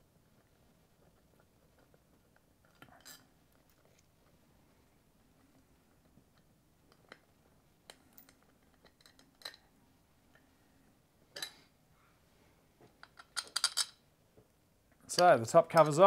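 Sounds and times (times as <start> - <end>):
metal clicks and clinks: 7.9 - 9.7, 13.0 - 14.0.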